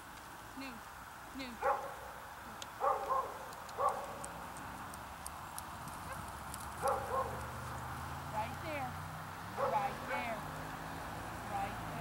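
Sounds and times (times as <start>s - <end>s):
dog barking: 1.6s - 2.0s, 2.8s - 4.2s, 6.8s - 7.5s, 9.6s - 10.3s.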